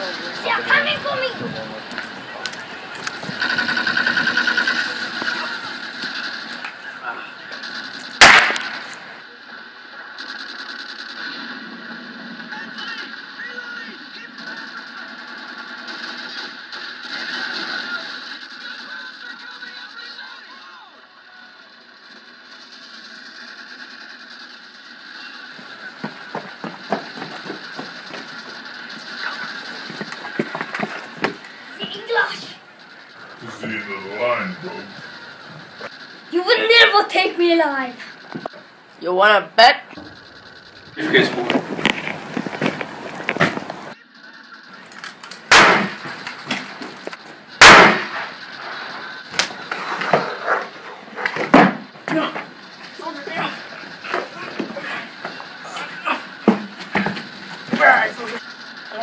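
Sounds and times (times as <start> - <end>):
loud gunshots: 7.6 - 9.1, 45.5 - 46.2, 47.6 - 48.6.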